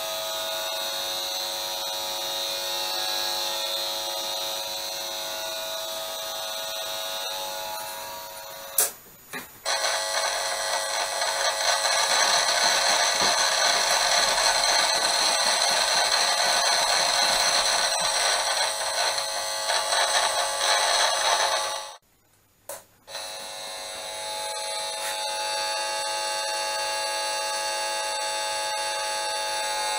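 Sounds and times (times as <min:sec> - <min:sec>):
meter buzzing with high tones: 0:00.0 - 0:09.0, 0:09.6 - 0:22.0, 0:22.7 - 0:29.9.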